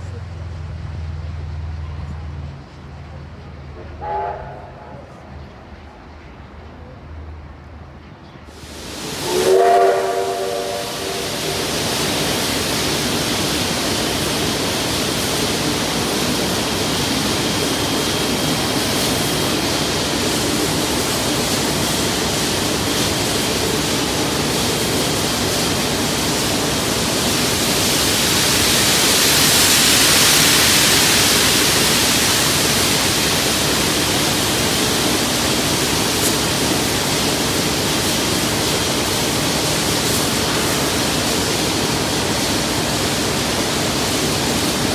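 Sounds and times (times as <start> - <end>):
steam locomotive hissing: 0.0 - 44.9
steam whistle note: 4.0 - 4.9, 9.0 - 11.7.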